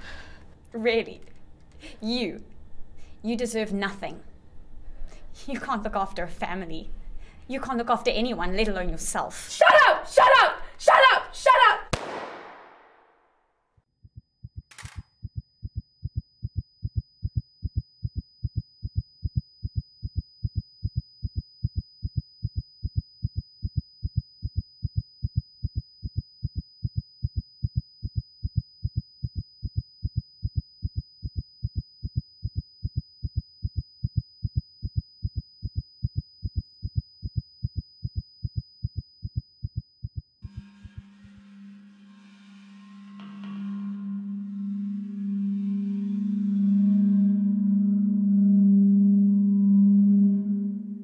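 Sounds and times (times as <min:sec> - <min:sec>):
heartbeat: 0:14.0 - 0:40.4
high-pitched ringing tone: 0:40.4 - 0:51.0.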